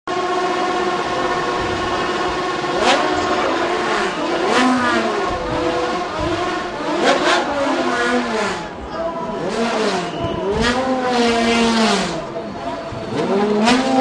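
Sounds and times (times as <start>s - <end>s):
race car engine revving: 0.1s - 14.0s.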